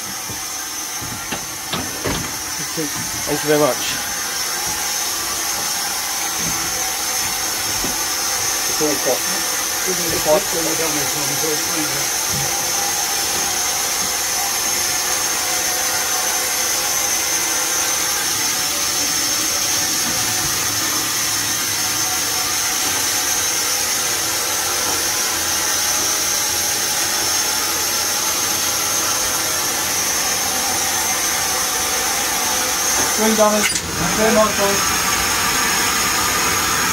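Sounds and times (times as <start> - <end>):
steam hissing: 0.0 - 36.9.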